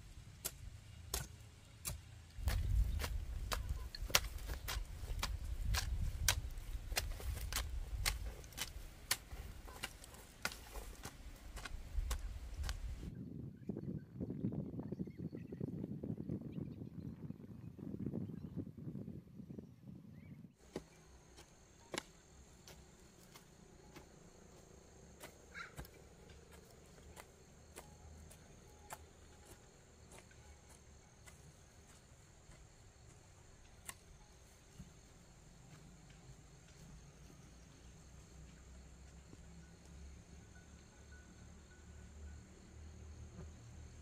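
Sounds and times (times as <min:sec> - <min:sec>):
crickets trilling: 0:20.6 - 0:44.0.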